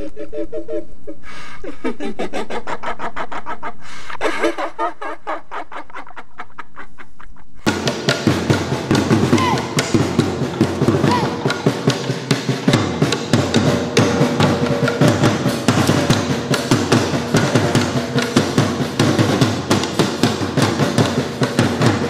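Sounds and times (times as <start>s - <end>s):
fast dense drumming music: 7.7s - 22.0s.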